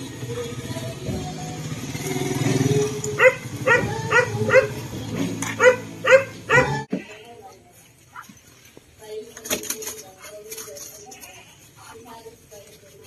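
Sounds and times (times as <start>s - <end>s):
motorcycle engine running: 0.0s - 6.9s
dog barking: 3.2s - 4.8s, 5.5s - 6.8s.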